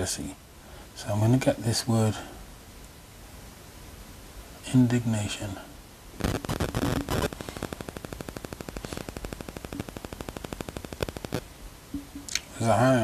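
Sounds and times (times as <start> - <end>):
rapid crackling clicks: 6.2 - 11.5.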